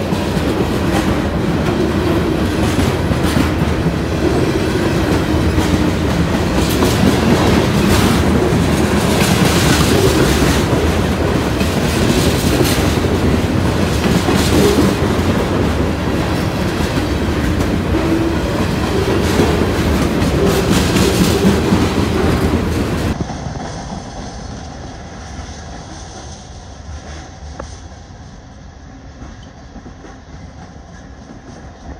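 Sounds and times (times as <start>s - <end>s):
freight train wheels clattering: 0.0s - 24.6s.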